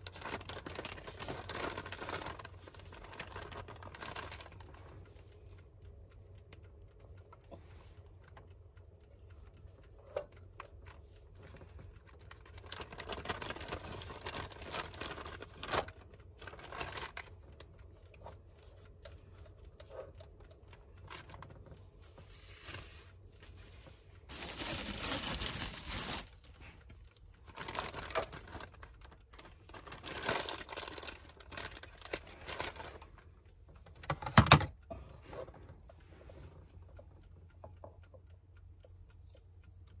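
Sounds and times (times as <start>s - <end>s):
gloved hands rustling and crinkling: 0.0s - 5.2s, 12.4s - 17.3s, 21.0s - 26.8s, 27.4s - 33.1s.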